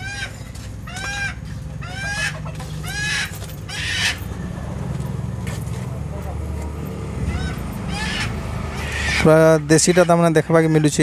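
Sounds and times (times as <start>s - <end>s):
chicken squawking in distress: 0.0s - 4.2s, 7.2s - 11.0s.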